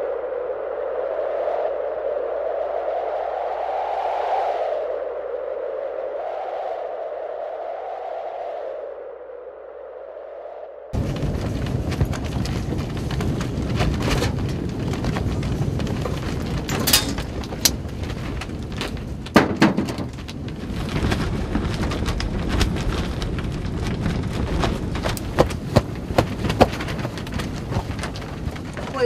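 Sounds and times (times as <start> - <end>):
wind buffeting tent walls: 10.9 - 29.0.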